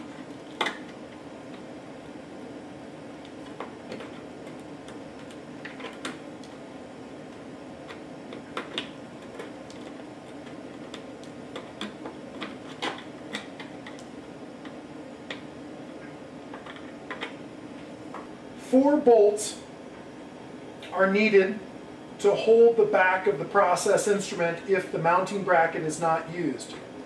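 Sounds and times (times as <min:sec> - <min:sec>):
steady low hum: 0:00.0 - 0:27.0
screwdriver scraping plastic: 0:07.9 - 0:14.0.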